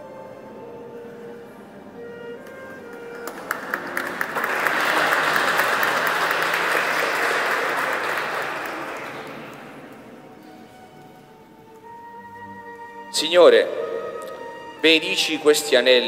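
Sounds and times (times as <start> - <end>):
congregation applauding: 2.8 - 10.0.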